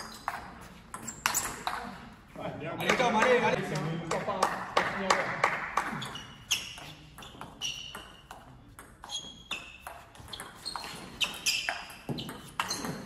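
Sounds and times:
table tennis ball hitting rackets: 0.0 - 2.0, 5.5 - 13.0.

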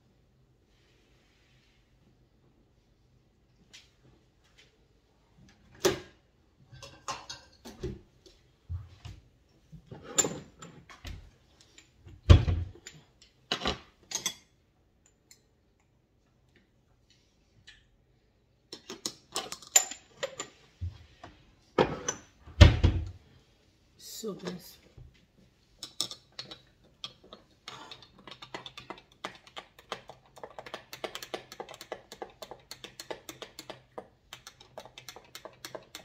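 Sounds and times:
kitchen items clicking and knocking: 6.8 - 8.0, 18.7 - 20.7, 25.8 - 36.0.

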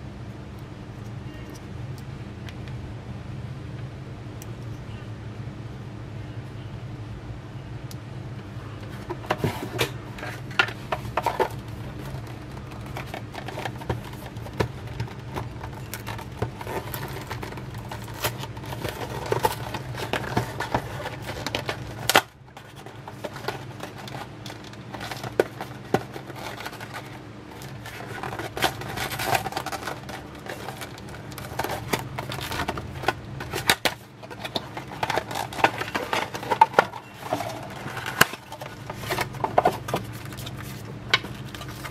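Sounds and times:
steady low hum: 0.0 - 41.9
fingers handling plastic headset: 8.8 - 41.9.

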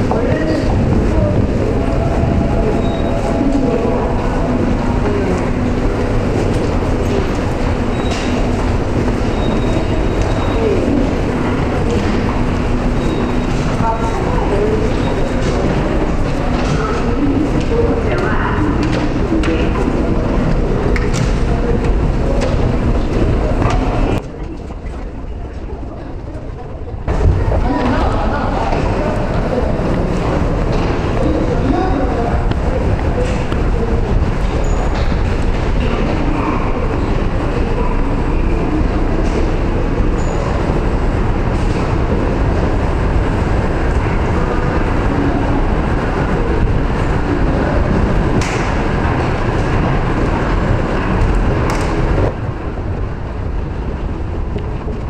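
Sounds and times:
crowd hum: 0.0 - 55.0
muffled rumble: 0.0 - 55.0.

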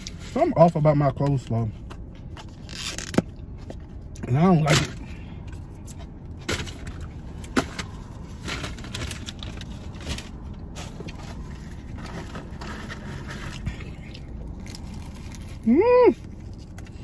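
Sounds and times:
low car cabin hum: 0.0 - 17.0
food packaging clicks and rustles: 6.4 - 15.6.

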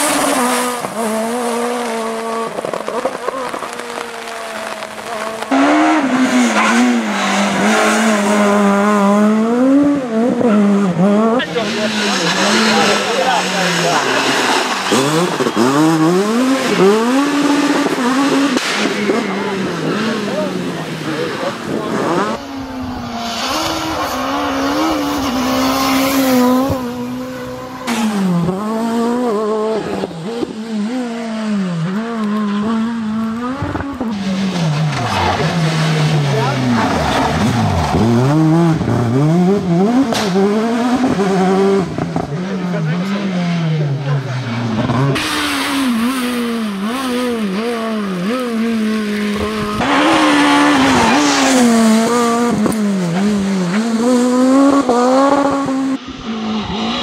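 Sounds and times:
rally car engine revving high: 0.0 - 57.0.

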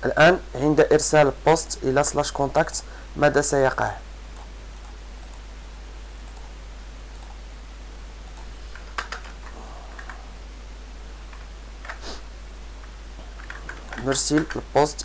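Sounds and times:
steady low hum: 0.0 - 15.0
keyboard key presses: 8.3 - 9.4, 13.4 - 14.6.

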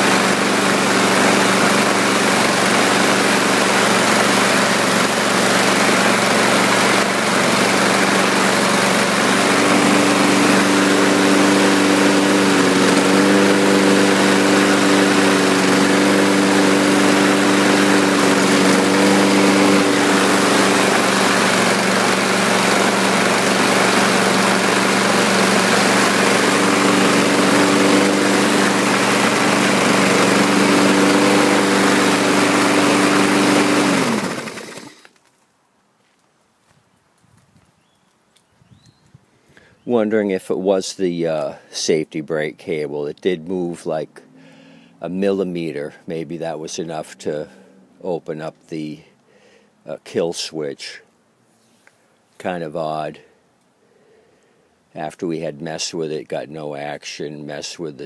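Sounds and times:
lawn mower engine running: 0.0 - 35.2.

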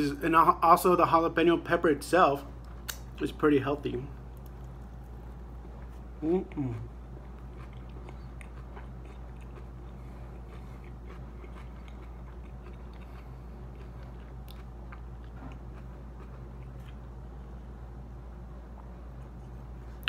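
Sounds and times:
steady low hum: 0.0 - 20.0
person chewing: 4.3 - 17.6.

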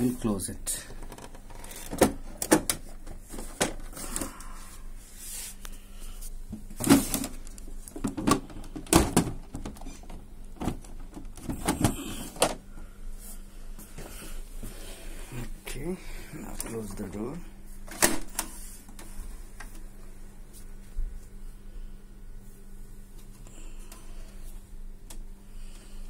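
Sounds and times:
plastic printer parts knocking: 6.5 - 12.6.

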